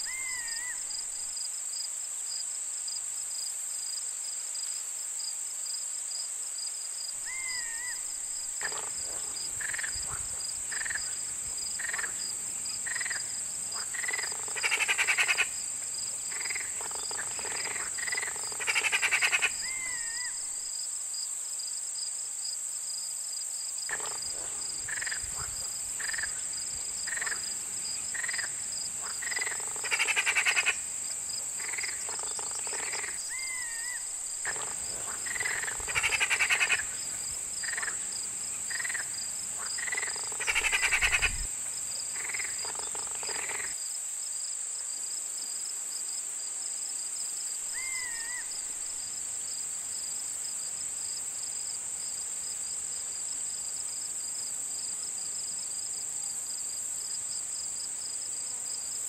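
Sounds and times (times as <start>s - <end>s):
loud rapid pulsed animal calls: 12.9s - 15.6s, 16.4s - 20.5s, 28.1s - 30.9s, 31.6s - 37.0s, 38.7s - 41.5s.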